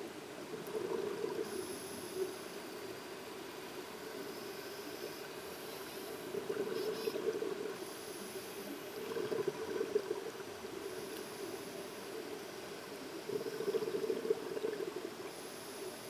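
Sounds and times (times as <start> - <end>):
underwater air bubbling: 0.5 - 2.4, 6.1 - 15.4.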